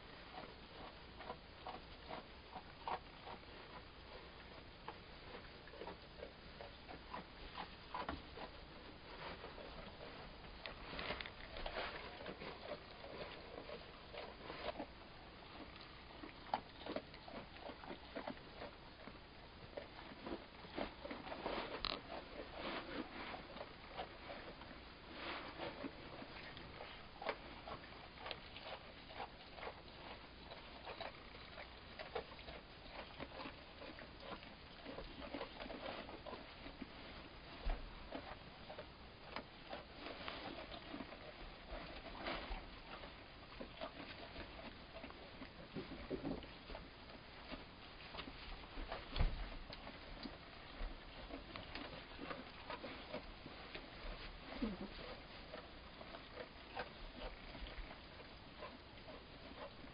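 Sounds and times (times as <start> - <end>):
small hooves pattering on straw: 0.0 - 59.9.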